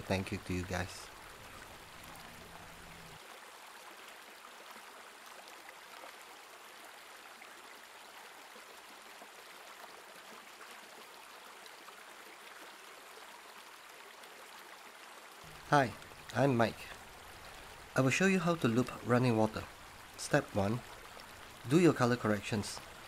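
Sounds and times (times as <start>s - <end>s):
stream flowing over rocks: 0.0s - 23.0s
low hum: 1.3s - 3.2s.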